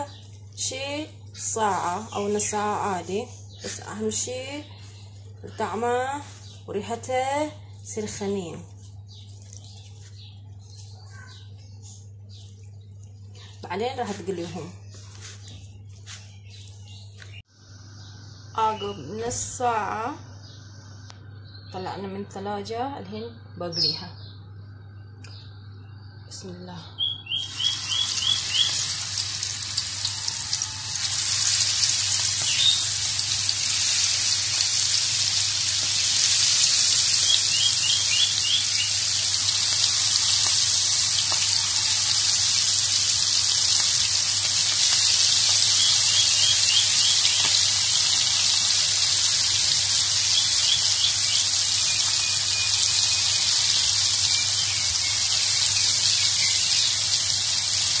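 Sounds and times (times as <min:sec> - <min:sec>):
prawns sizzling in hot oil: 0:27.4 - 0:58.0.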